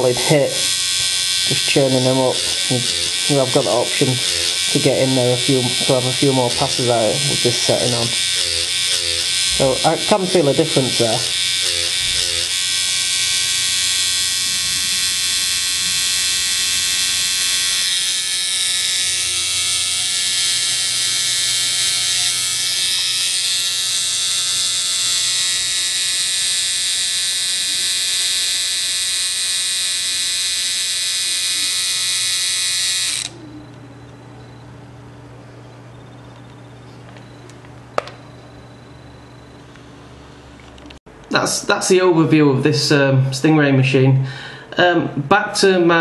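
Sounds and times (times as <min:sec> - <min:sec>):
tattoo machine buzzing: 0:00.0 - 0:34.6.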